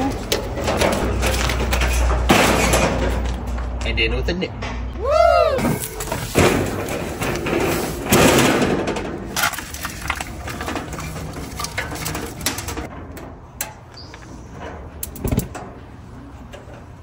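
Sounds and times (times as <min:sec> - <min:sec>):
metal clicks and knocks: 0:05.8 - 0:17.0.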